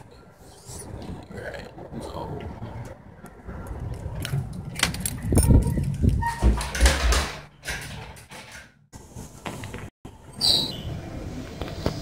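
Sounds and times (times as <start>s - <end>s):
door being pushed open: 4.8s - 8.7s.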